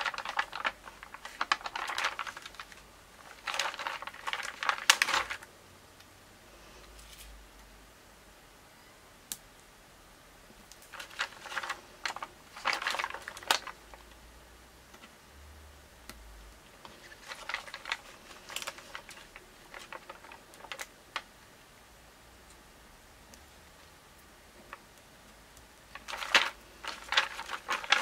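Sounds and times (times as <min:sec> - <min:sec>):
plastic sheet crinkling: 0:00.0 - 0:05.5, 0:10.8 - 0:14.2, 0:16.7 - 0:21.4, 0:25.8 - 0:28.0.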